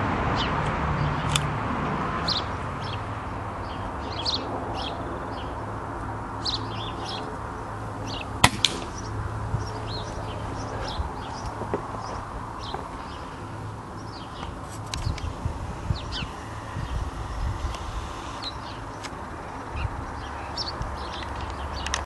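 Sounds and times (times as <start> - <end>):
small birds chirping: 2.2 - 22.0
pellet hitting target: 8.4 - 9.0
air gun shot crack: 8.4 - 9.1.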